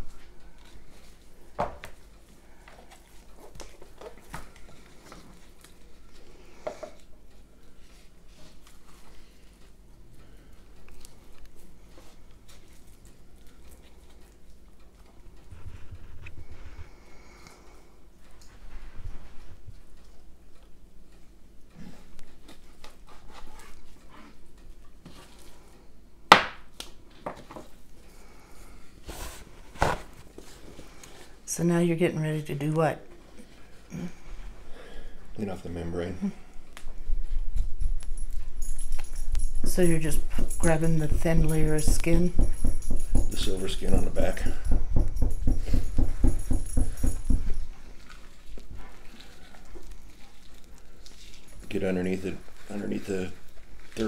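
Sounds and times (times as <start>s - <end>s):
knife and meat knocking on cutting board: 41.7s - 43.5s, 44.6s - 47.5s.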